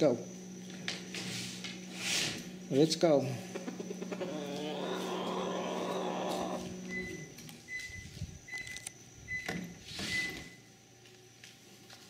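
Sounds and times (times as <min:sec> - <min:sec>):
harsh animal call: 0:03.5 - 0:06.9.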